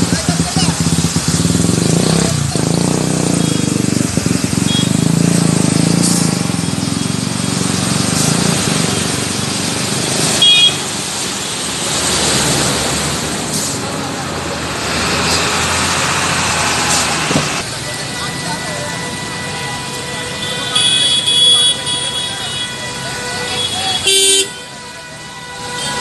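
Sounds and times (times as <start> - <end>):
water splashing and rushing: 0.0 - 20.4
truck engine rumbling: 0.0 - 26.0.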